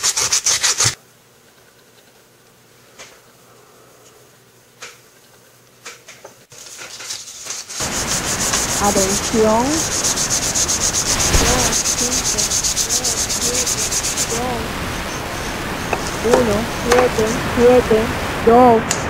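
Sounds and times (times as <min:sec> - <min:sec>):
radio static with rapid pulsing: 0:08.7 - 0:18.8.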